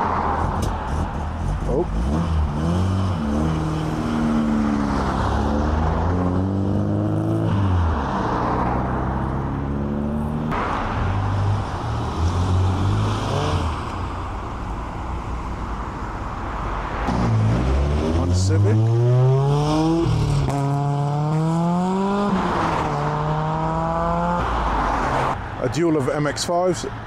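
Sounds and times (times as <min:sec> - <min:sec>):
another car accelerating: 0:00.0 - 0:25.4
car accelerating through gears: 0:17.0 - 0:24.5.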